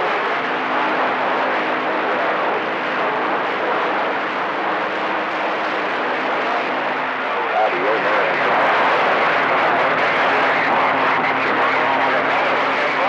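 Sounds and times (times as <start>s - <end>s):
radio static hiss: 7.2s - 13.0s.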